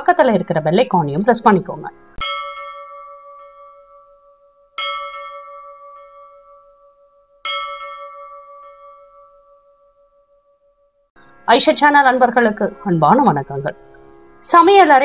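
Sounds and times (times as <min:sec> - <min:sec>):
bell ringing: 0:02.2 - 0:10.8.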